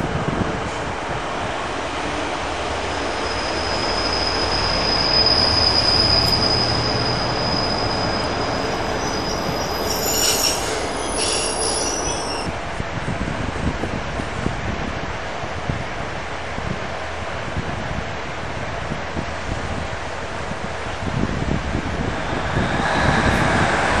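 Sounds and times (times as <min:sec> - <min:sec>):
train wheels squealing: 0:02.8 - 0:12.6, 0:21.4 - 0:24.0.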